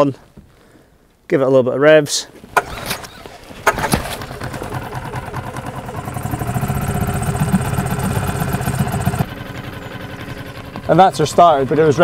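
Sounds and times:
outboard motor running: 2.6 - 12.0.

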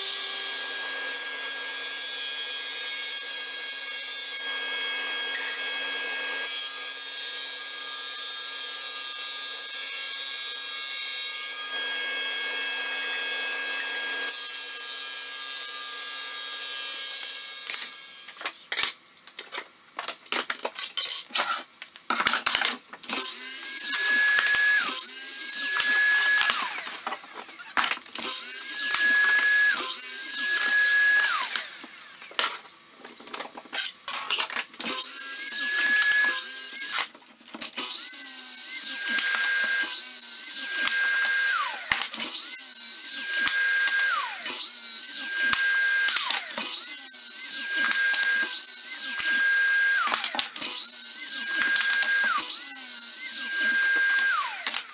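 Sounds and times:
miter saw whining: 23.1 - 32.4, 34.2 - 37.1, 37.7 - 54.9.

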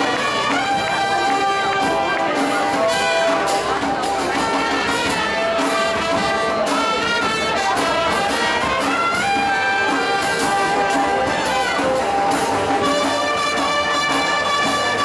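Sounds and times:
brass band playing: 0.0 - 15.0.

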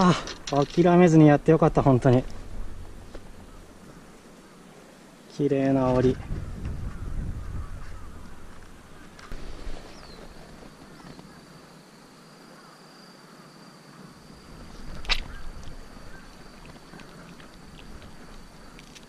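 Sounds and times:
high-pitched insect trill: 0.0 - 19.0.

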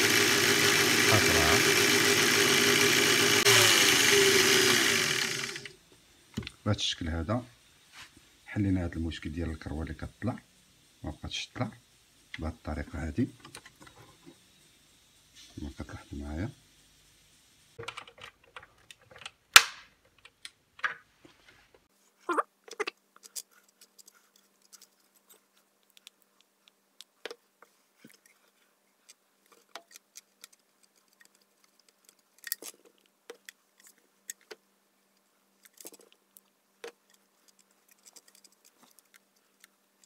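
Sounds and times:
metal parts clicking and knocking: 17.8 - 19.4, 29.1 - 34.6, 35.6 - 36.2, 36.8 - 39.8.

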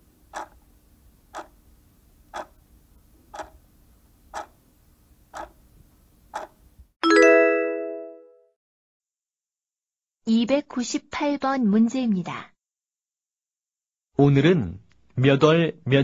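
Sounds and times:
timer ticking: 0.3 - 0.6, 3.4 - 3.6, 4.4 - 4.6
bright chime: 7.0 - 8.3.

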